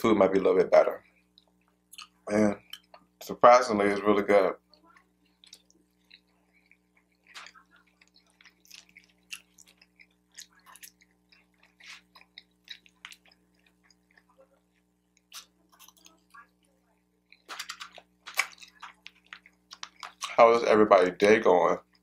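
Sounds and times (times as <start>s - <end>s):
chewing with mouth smacks: 1.0s - 3.2s, 5.2s - 20.4s.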